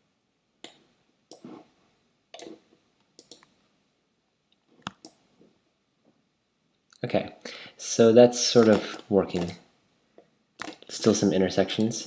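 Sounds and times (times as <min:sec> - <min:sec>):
computer mouse and keyboard clicks: 0:02.3 - 0:02.6, 0:03.2 - 0:03.5, 0:08.6 - 0:09.6, 0:10.6 - 0:10.9.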